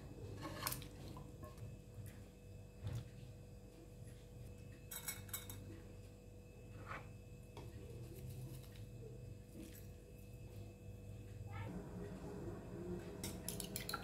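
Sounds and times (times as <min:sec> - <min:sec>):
low steady hum: 0:00.0 - 0:14.0
utensils clinking on dishes: 0:04.9 - 0:05.7.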